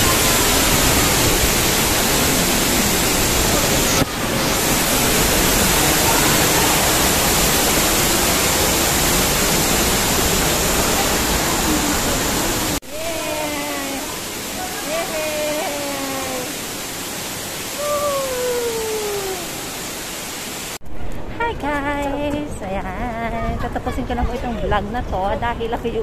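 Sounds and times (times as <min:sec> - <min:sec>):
rush of falling water: 0:00.0 - 0:21.2
faint voices: 0:10.8 - 0:16.6.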